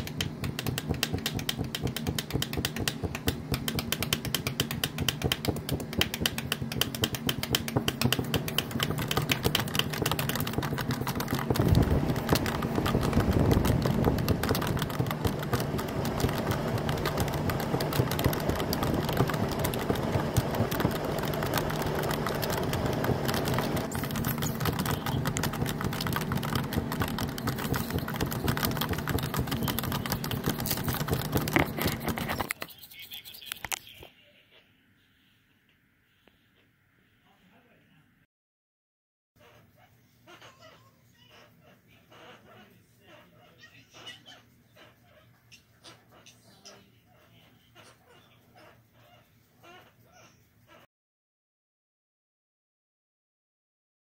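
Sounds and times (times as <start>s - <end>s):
rapid clicking: 0.0s - 32.6s.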